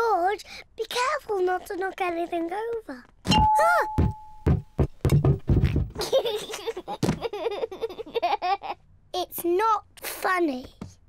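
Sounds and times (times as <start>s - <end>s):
cartoon thuds: 3.3s - 6.0s
cartoon piglet laughing: 6.0s - 8.8s.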